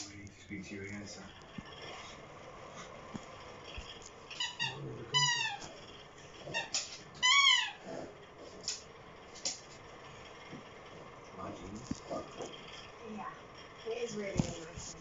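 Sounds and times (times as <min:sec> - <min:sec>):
squeaky toy squeaking: 0:04.3 - 0:05.8, 0:06.5 - 0:07.8.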